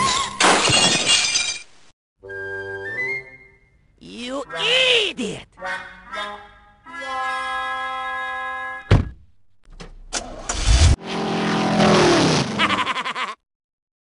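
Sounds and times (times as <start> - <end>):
sharp thump: 8.9 - 9.3.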